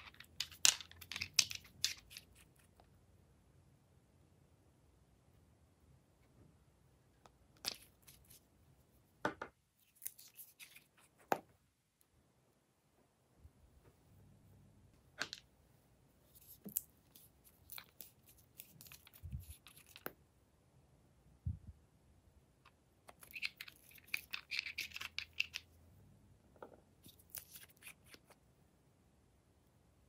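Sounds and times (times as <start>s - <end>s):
plastic pens clicking and tapping: 0.0s - 2.6s, 23.1s - 25.7s.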